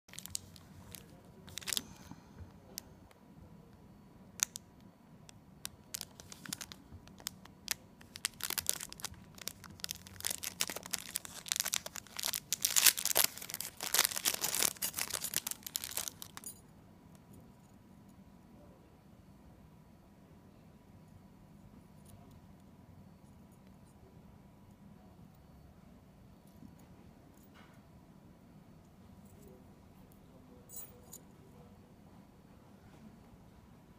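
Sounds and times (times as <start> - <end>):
plastic bag crinkling: 0.1 - 2.0, 5.9 - 16.5.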